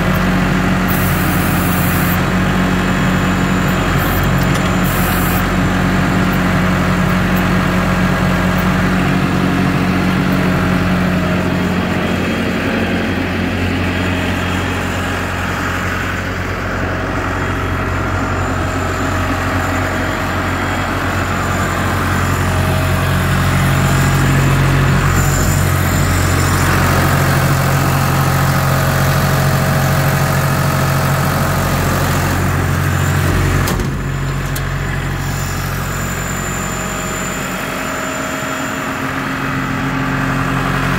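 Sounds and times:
drill rig diesel engine running: 0.0 - 40.9.

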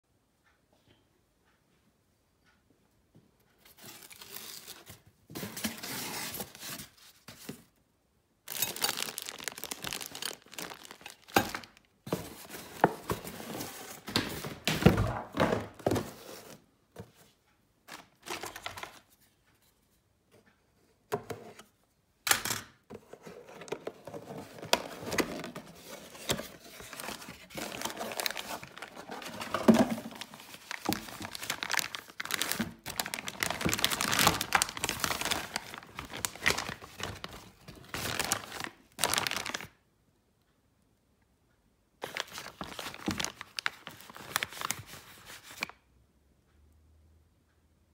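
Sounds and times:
plastic bags crinkling: 8.5 - 11.9, 24.1 - 39.7, 42.0 - 45.7
cardboard packaging being opened: 8.5 - 15.0, 23.3 - 39.7, 42.0 - 45.7.

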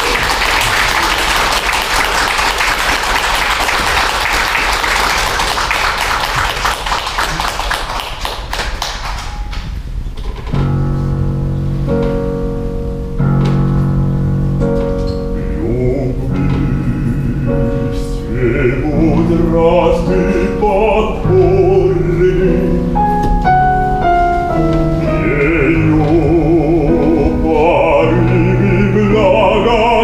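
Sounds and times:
audience applauding: 0.0 - 9.6
slow piano chords: 9.0 - 30.0.

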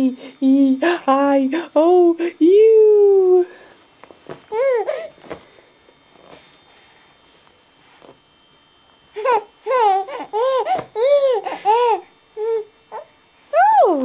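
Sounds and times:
baby cooing and laughing: 4.5 - 5.1, 9.2 - 13.1.

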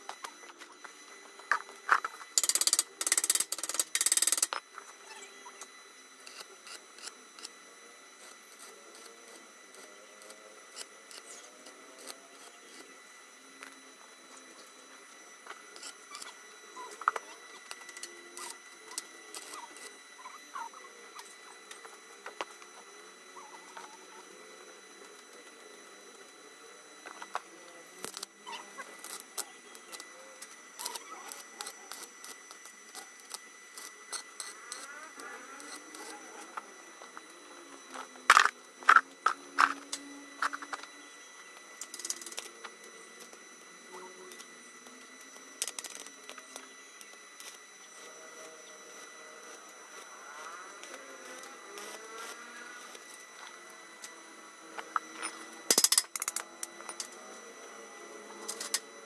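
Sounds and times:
steady high whine: 0.0 - 59.0
welding crackle and ticks: 1.5 - 4.6, 9.7 - 12.8, 27.3 - 28.4, 29.0 - 36.6, 44.3 - 47.6.

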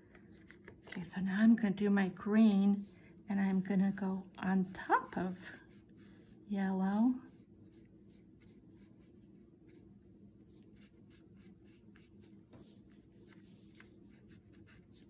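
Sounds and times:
low steady hum: 0.0 - 15.0
brush swishing on paper: 7.2 - 15.0.

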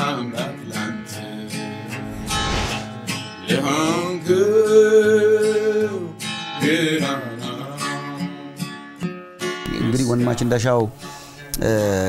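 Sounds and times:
acoustic guitar strumming: 0.0 - 2.2, 2.8 - 11.4
person singing slow song: 3.4 - 8.4.

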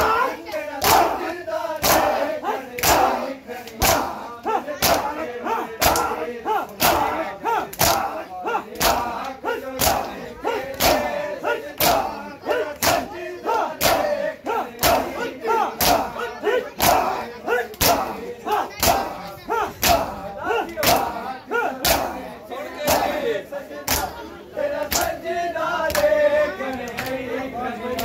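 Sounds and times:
men shouting and chanting: 0.0 - 28.0
hands slapping chests: 1.8 - 4.2, 4.8 - 5.2, 5.8 - 8.1, 8.8 - 10.1, 10.7 - 11.1, 11.7 - 12.1, 12.8 - 13.1, 13.8 - 14.1, 15.8 - 16.1, 17.7 - 19.1, 19.8 - 21.2, 21.8 - 22.1, 23.8 - 24.1, 24.8 - 25.2, 25.9 - 26.1.

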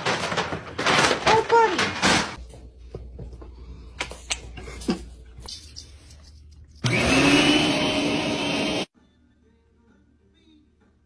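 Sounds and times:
motor-driven appliance whirring: 6.8 - 8.8.

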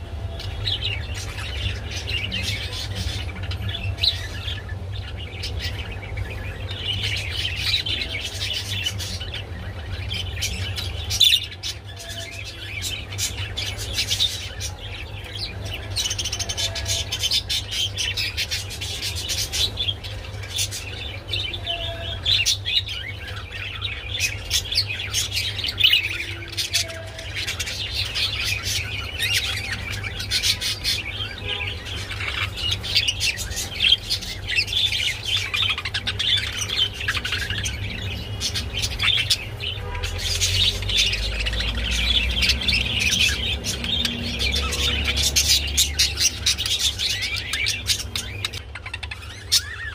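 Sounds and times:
budgerigars chattering: 0.2 - 49.9.

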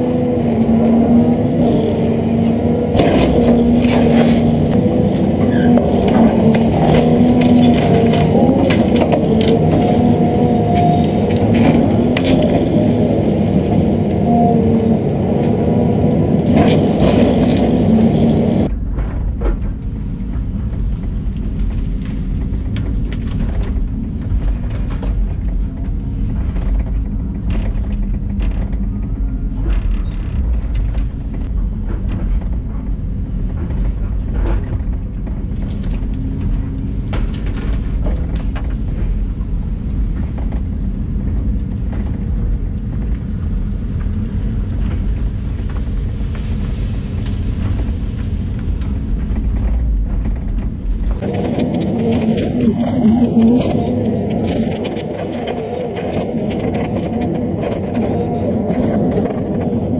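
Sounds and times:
excavator engine and hydraulics: 0.0 - 59.9
cracks and knocks of brush: 0.4 - 14.2.

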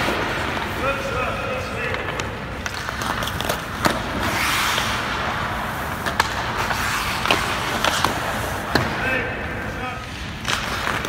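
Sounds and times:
skates scraping ice: 0.0 - 11.0
sticks and pucks cracking: 1.8 - 5.0, 6.0 - 9.0, 10.0 - 11.0.

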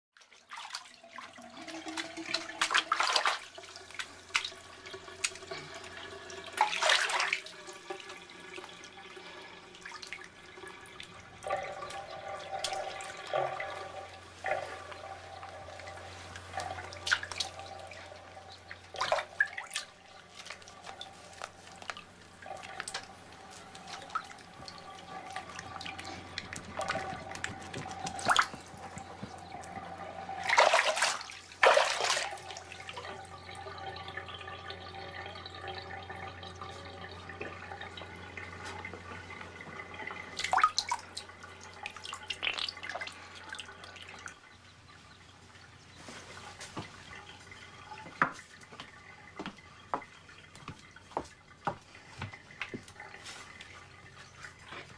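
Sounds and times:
bathwater splashing and dripping: 0.2 - 54.9
faint steady hum: 1.0 - 54.9
loud splashes: 30.4 - 32.4.

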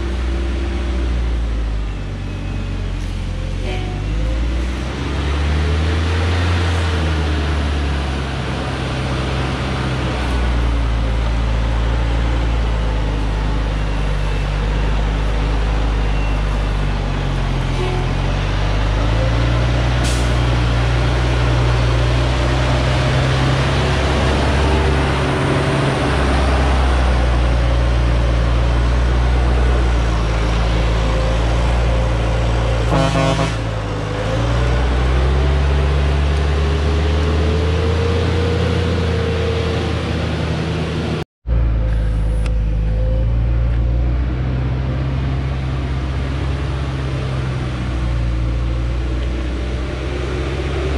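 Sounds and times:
diesel truck engine labouring: 0.0 - 50.9
truck horn toot: 3.6 - 4.2, 17.7 - 18.5, 32.8 - 33.8.

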